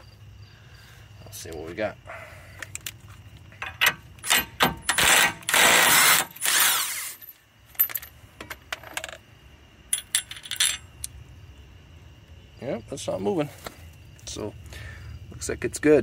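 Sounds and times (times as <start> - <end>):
metallic clinks of loose parts: 2.6 - 9.2, 9.9 - 11.2
impact wrench bursts: 4.2 - 7.3.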